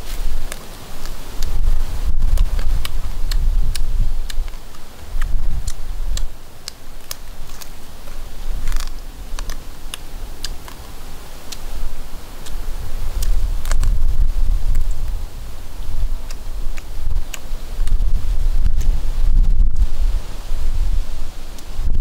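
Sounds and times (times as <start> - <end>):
roasted bird chewed with crisp crackles: 0.0 - 19.9.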